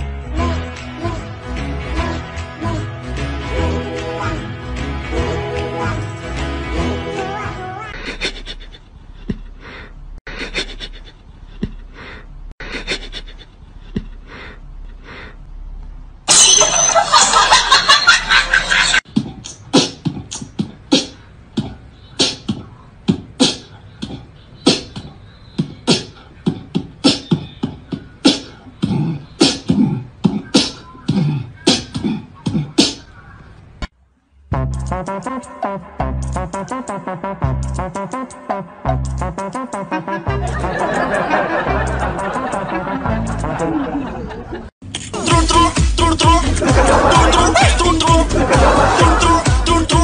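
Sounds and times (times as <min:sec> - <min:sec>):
rhythmic percussive beat: 0:34.5 - 0:43.6, 0:45.0 - 0:50.0.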